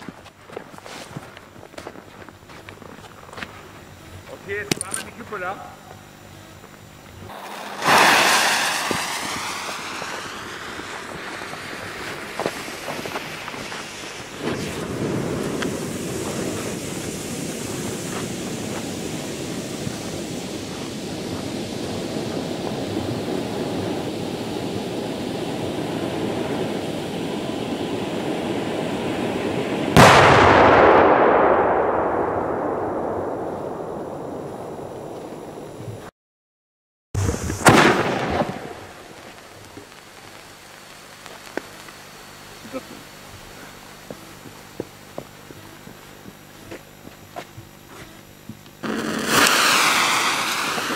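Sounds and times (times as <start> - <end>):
firework fuse hissing: 3.1 - 30.5, 37.2 - 50.9
firework charge burning with hiss: 6.8 - 33.8, 37.2 - 50.9
loud firework bang: 7.3 - 13.8, 29.9 - 35.2, 37.2 - 39.2, 48.8 - 50.9.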